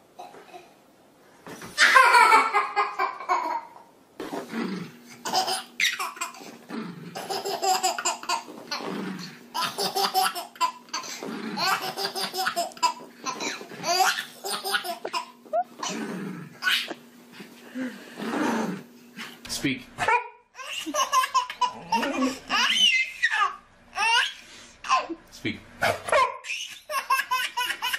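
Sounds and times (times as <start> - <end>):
baby laughing: 1.8 - 3.8, 5.2 - 6.5, 7.2 - 8.9, 9.5 - 16.0, 16.6 - 17.0, 20.1 - 25.2, 26.2 - 27.9.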